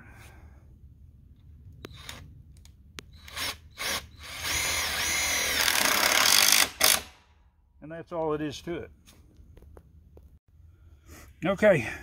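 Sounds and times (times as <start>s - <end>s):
cordless drill driving screw: 1.8s - 2.2s, 3.1s - 7.1s.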